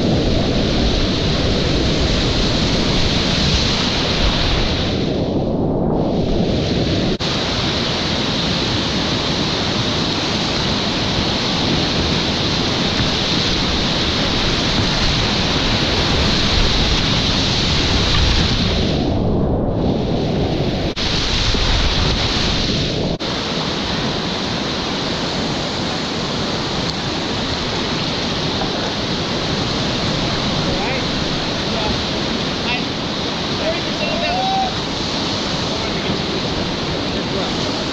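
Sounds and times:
river rapids roaring: 0:06.5 - 0:18.9, 0:21.0 - 0:37.9.

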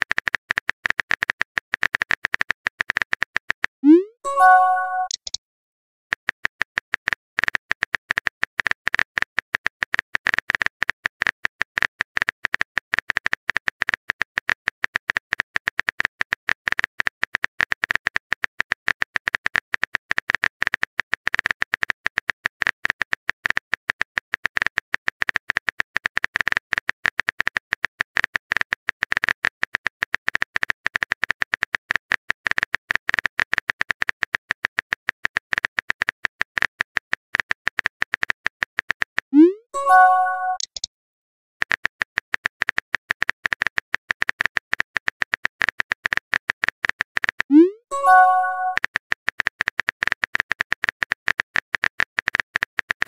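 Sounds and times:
phone keyboard typing clicks: 0:03.8 - 0:05.4, 0:39.8 - 0:40.9, 0:48.0 - 0:48.8.

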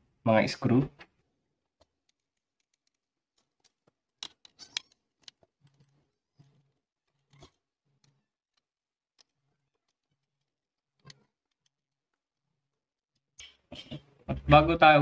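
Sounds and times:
screwdriver clicking and scraping: 0:01.8 - 0:12.0.

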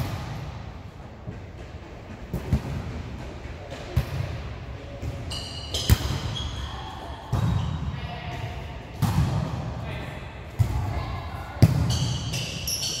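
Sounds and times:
players' voices echoing: 0:00.0 - 0:13.0
shoe squeaks: 0:05.3 - 0:07.0, 0:11.9 - 0:13.0.

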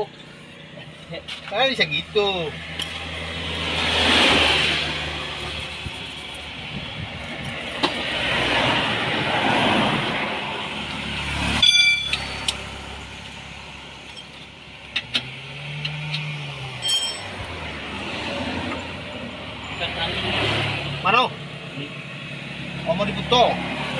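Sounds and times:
road traffic passing: 0:00.0 - 0:23.9
sharp metallic clank: 0:11.6 - 0:12.6, 0:16.8 - 0:17.4.

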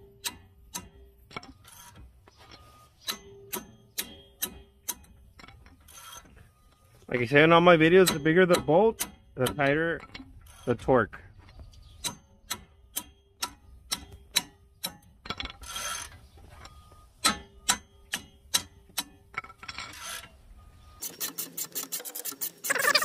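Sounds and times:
hand ratchet clicking: 0:07.3 - 0:10.8, 0:12.0 - 0:16.1, 0:17.2 - 0:19.4.

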